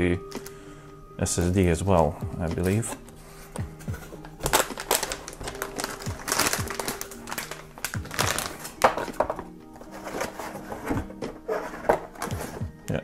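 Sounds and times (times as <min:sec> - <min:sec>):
chillhop music with steady beat: 0:00.0 - 0:13.0
plastic bag crinkling: 0:04.1 - 0:10.6.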